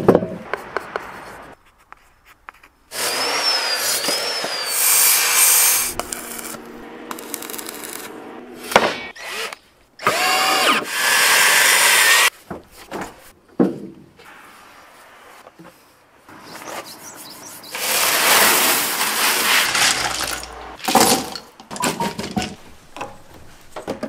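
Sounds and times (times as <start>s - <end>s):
power tool whining: 2.9s - 12.3s
power tool winding up and down: 2.9s - 12.3s
steady low hum: 5.9s - 9.1s.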